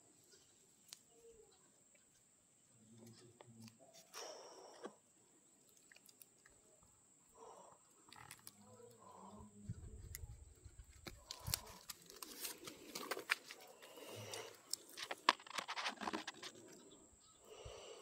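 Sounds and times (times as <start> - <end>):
dry leaves and twigs rustling: 9.6 - 16.9.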